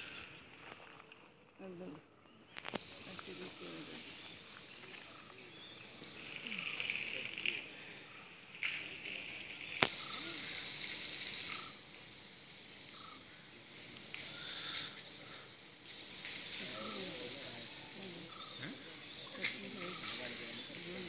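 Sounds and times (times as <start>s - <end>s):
garden hose water hissing: 2.6s - 21.0s.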